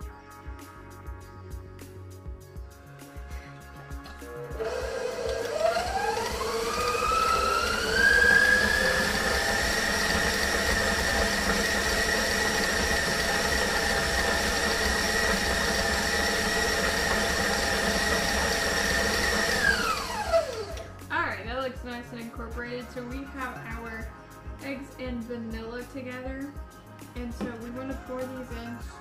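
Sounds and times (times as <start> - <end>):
electric mixer motor whine: 4.0 - 21.0.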